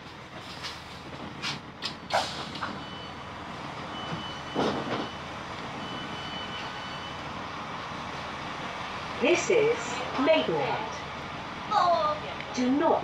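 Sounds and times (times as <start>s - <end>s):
train door warning beeps: 2.6s - 3.3s, 3.9s - 7.2s.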